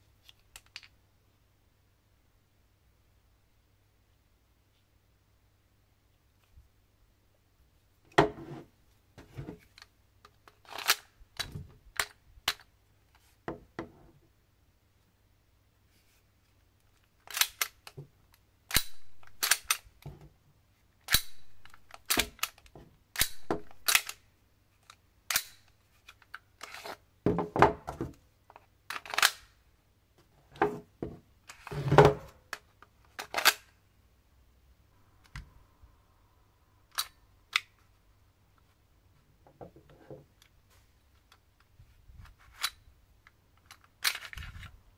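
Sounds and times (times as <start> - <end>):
magazine sliding in and out: 10.5 - 12.7, 17.3 - 18.0, 18.7 - 20.1, 21.0 - 24.2, 24.8 - 27.0, 28.9 - 29.5, 31.5 - 33.8, 36.9 - 37.8, 42.5 - 42.9, 43.6 - 44.7
pistol clicks and clacks: 18.7 - 19.9, 21.1 - 22.6, 23.2 - 24.2, 25.3 - 25.6.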